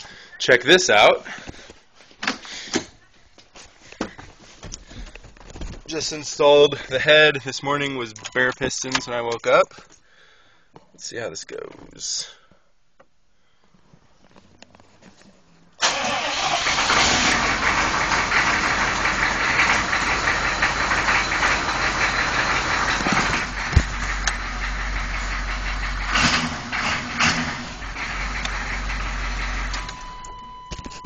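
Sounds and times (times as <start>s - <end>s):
diesel engine starting and running: 15.8s - 31.0s.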